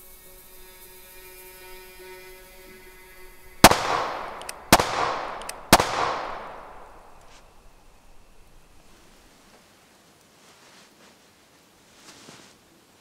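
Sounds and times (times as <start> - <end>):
echoing gunshots: 3.6 - 7.6
faint clicks: 3.8 - 8.9.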